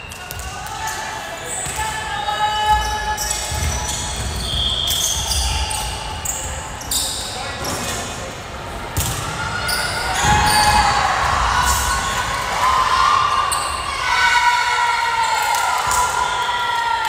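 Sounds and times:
sneaker squeaks on hardwood floor: 2.5s - 8.1s
players shouting: 9.0s - 17.0s.

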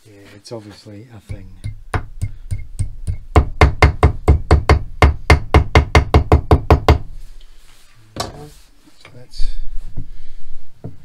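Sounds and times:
hammer striking metal wire: 1.3s - 7.0s.

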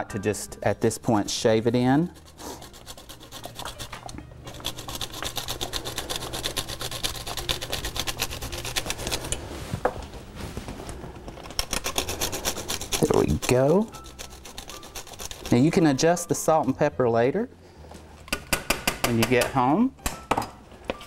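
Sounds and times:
garlic rasping on grater: 2.0s - 9.3s, 11.6s - 15.9s.

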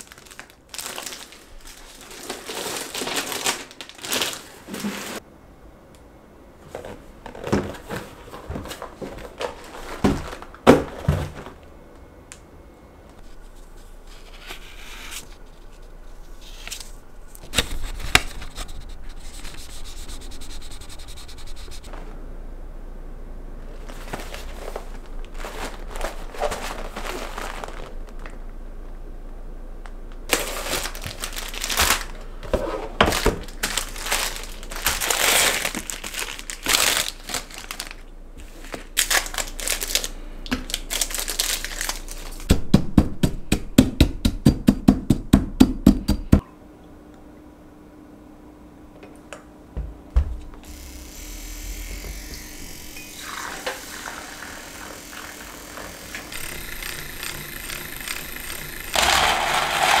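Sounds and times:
plastic packaging crinkling: 0.0s - 5.2s, 7.4s - 11.6s, 23.8s - 28.4s, 30.3s - 32.3s, 33.0s - 42.5s.

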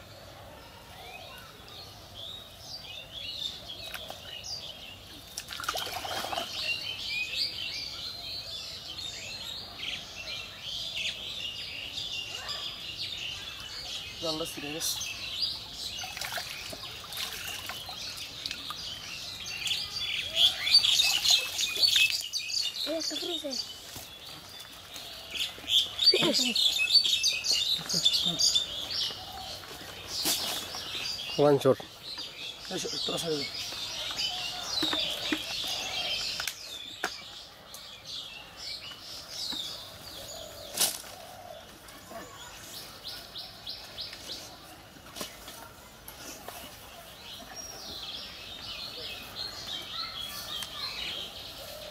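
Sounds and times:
small birds chirping: 0.0s - 51.9s
water trickling and splashing: 5.3s - 6.9s, 15.9s - 19.0s, 20.9s - 22.4s.

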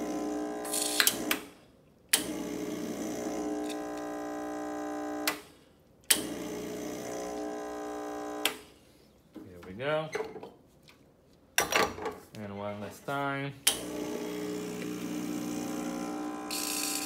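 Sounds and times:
espresso machine pump humming: 0.0s - 1.3s, 2.2s - 5.3s, 6.2s - 8.5s, 13.8s - 17.0s.

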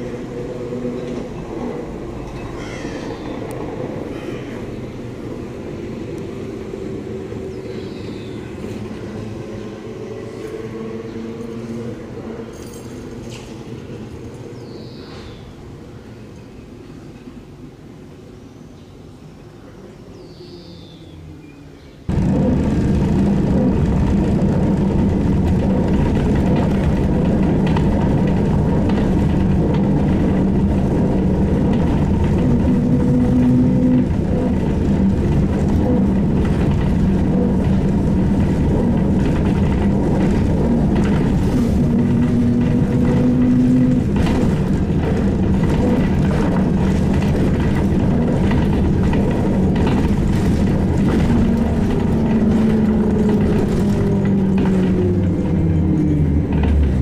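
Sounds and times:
trolleybus electric hum: 0.0s - 57.0s
clicks and rattles: 22.1s - 55.5s.

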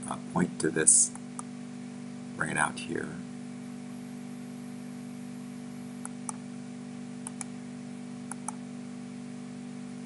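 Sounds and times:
steady low hum: 0.0s - 10.0s
computer mouse clicks: 7.2s - 7.5s, 8.3s - 8.6s.

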